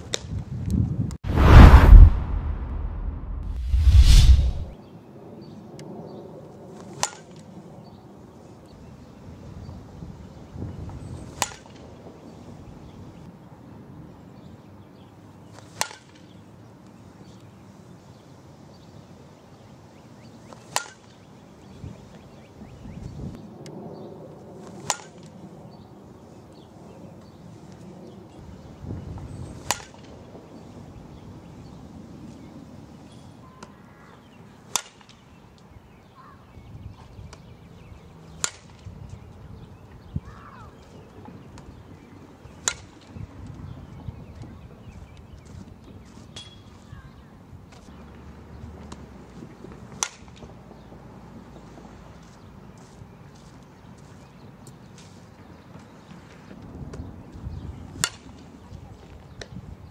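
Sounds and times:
bat cracking on softball: 0:06.9 - 0:07.5, 0:11.3 - 0:11.8, 0:15.6 - 0:16.3, 0:20.5 - 0:21.2, 0:24.7 - 0:25.4, 0:29.6 - 0:30.1, 0:34.7 - 0:35.2, 0:38.4 - 0:38.9, 0:42.6 - 0:43.1, 0:49.7 - 0:50.5, 0:58.0 - 0:58.4.

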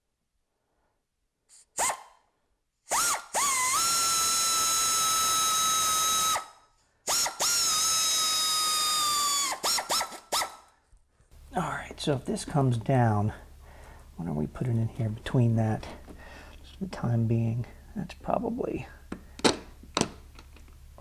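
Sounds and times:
electric drill driving screws: 0:02.9 - 0:10.7.

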